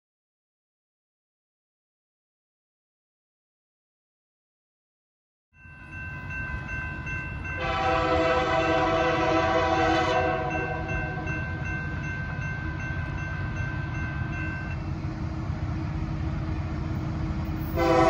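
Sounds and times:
crossing signal bell dinging: 0:05.6 - 0:14.9
low train rumble: 0:05.6 - 0:18.0
locomotive air horn: 0:07.6 - 0:11.4, 0:17.7 - 0:18.0.

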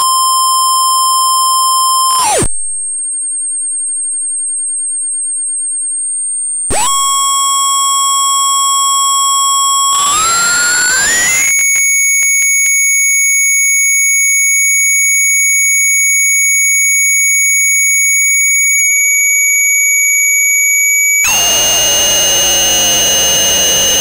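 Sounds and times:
buzzy electronic tone: 0:06.7 - 0:11.8, 0:21.2 - 0:24.0
thin high whistle: 0:06.8 - 0:11.8, 0:21.3 - 0:24.0.

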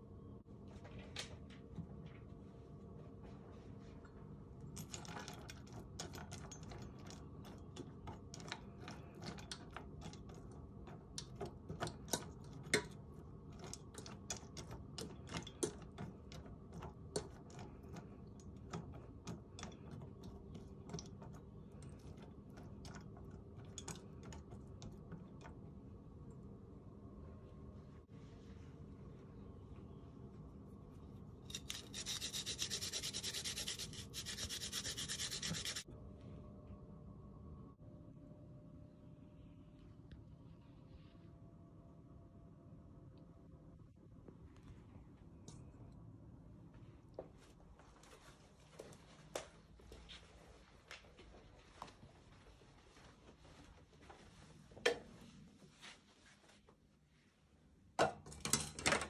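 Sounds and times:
fork clinking and scraping bowl: 0:31.5 - 0:35.8.

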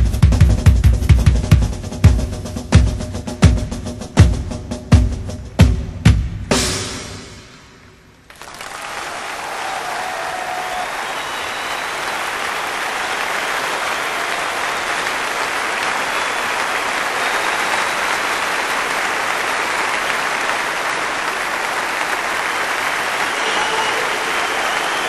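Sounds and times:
audience applauding: 0:08.3 - 0:25.0.

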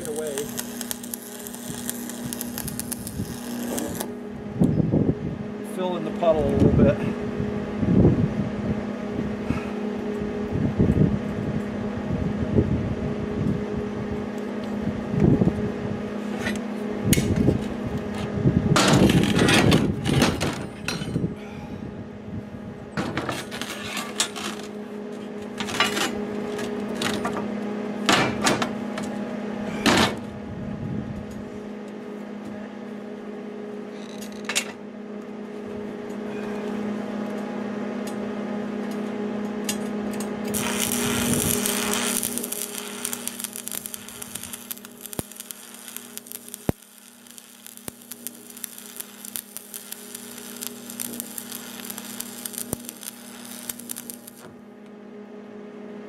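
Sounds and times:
welding arc crackling: 0:00.0 - 0:04.2, 0:18.8 - 0:20.4, 0:40.2 - 0:54.5
welder hum: 0:00.0 - 0:07.6, 0:13.2 - 0:30.4, 0:35.2 - 0:55.4.

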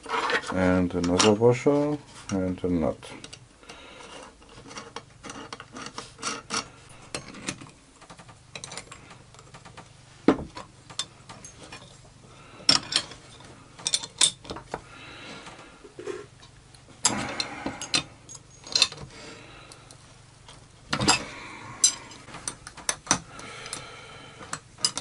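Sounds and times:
spanners clinking on nut: 0:17.0 - 0:19.0, 0:24.5 - 0:25.0.

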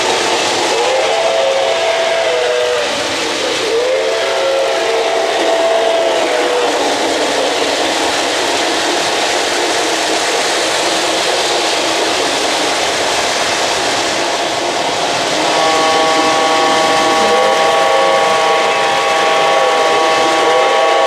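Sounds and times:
model trains rumbling on track: 0:00.0 - 0:21.0
steady chord of tones: 0:15.4 - 0:21.0.

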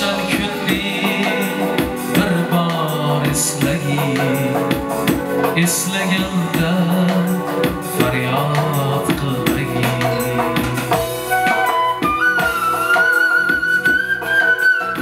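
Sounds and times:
man singing: 0:00.0 - 0:11.6
keyboard: 0:00.0 - 0:15.0
side-blown flute melody: 0:10.4 - 0:15.0.

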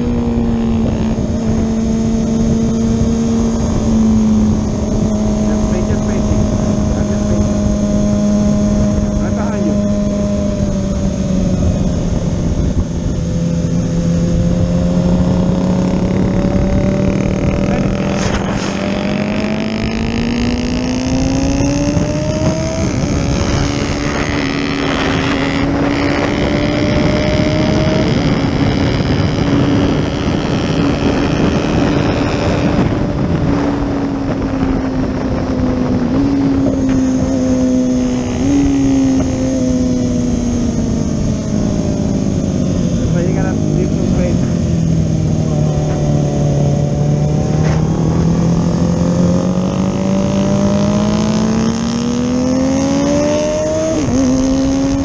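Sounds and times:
motorcycle engine running: 0:00.0 - 0:55.0
wind noise: 0:00.0 - 0:55.0.

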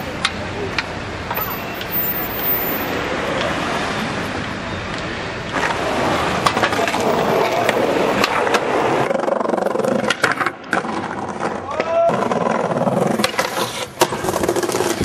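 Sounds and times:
skateboard clacking on ground: 0:00.0 - 0:01.9, 0:05.5 - 0:15.0
skateboard wheels rumbling on pavement: 0:00.0 - 0:15.0.

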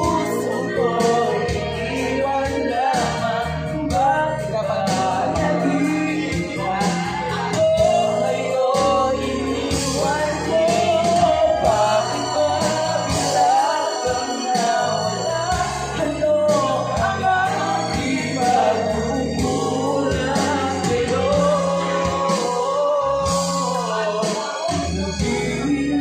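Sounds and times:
instrumental backing with bass notes: 0:00.0 - 0:26.0
person singing: 0:00.0 - 0:26.0.

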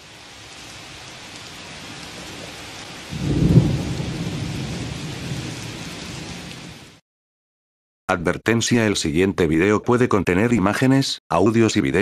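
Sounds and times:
rain hiss: 0:00.0 - 0:07.0
thunder rumbling: 0:01.6 - 0:07.0.

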